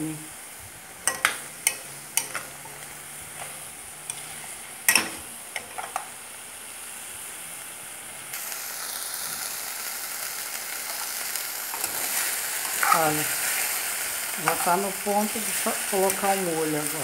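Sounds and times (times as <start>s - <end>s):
meatballs sizzling in a frying pan: 0.0s - 17.0s
metal spoon scraping a pan: 1.0s - 6.0s, 11.7s - 13.8s.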